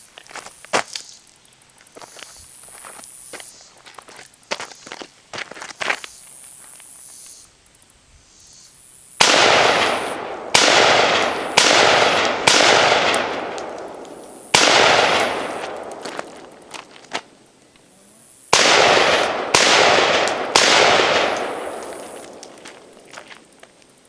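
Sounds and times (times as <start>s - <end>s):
pistol shots with echo: 9.2s - 16.4s, 18.5s - 22.9s.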